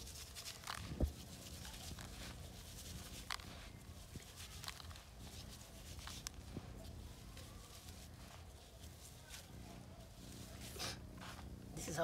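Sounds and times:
plastic sheet crinkling: 0.0s - 10.8s
hands rustling damp meal: 0.0s - 12.0s.

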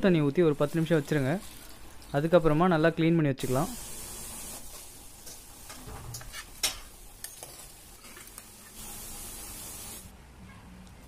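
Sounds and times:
metal spoon clinking: 7.2s - 8.3s.

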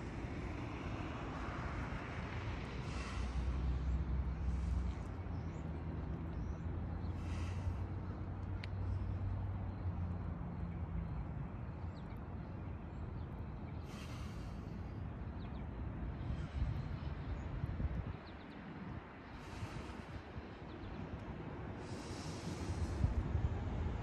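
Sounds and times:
person breathing hard: 2.7s - 5.4s, 7.0s - 8.4s, 19.3s - 20.9s, 21.8s - 23.6s.

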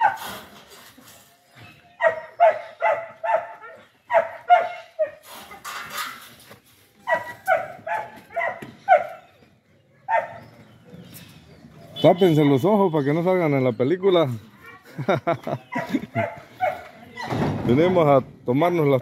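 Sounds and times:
dog barking: 0.0s - 0.2s, 2.0s - 5.2s, 7.0s - 9.3s, 10.0s - 10.6s, 15.7s - 17.3s.

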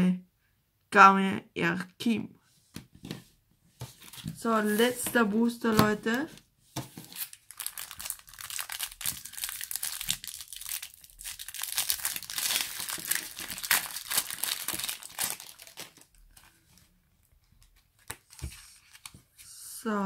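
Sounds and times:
foil pack tearing and crinkling: 7.1s - 16.4s.

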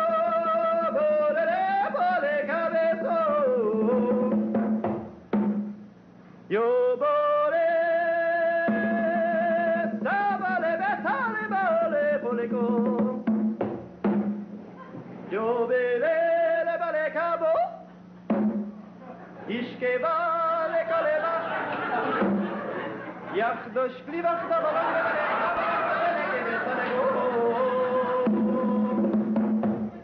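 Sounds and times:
man singing: 0.0s - 4.5s, 6.5s - 13.3s, 15.3s - 17.9s, 19.5s - 21.7s, 23.3s - 25.8s, 26.6s - 29.4s
conga hits: 3.0s - 5.9s, 8.6s - 14.6s, 18.3s - 18.8s, 22.2s - 22.6s, 28.2s - 30.0s.

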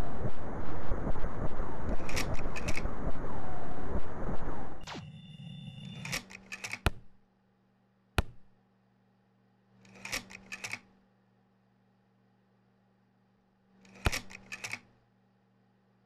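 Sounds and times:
sharp clicks: 1.9s - 2.9s, 6.0s - 7.2s, 9.9s - 10.9s, 13.9s - 14.9s.

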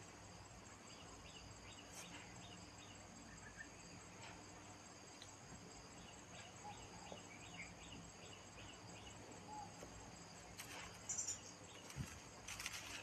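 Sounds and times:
insects chirring: 0.0s - 13.0s
small faint chirps: 9.6s - 13.0s
brief rustle: 10.6s - 13.0s.

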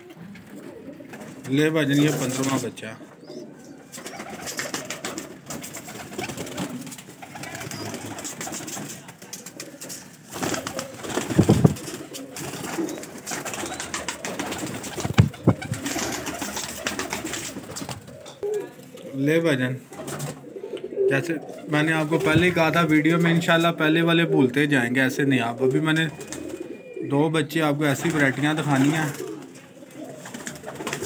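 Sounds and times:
pigeons cooing: 0.0s - 31.0s
wings flapping: 3.9s - 19.0s, 19.9s - 20.5s, 25.9s - 26.8s, 27.9s - 31.0s.

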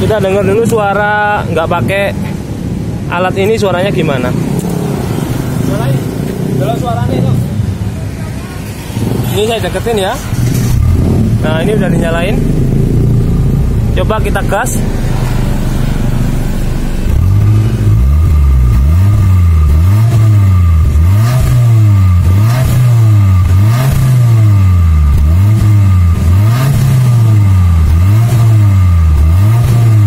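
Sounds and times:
car engine revving at exhaust: 8.6s - 30.0s.

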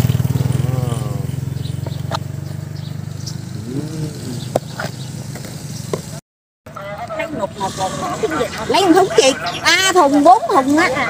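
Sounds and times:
motorbike engine running: 0.0s - 6.2s.

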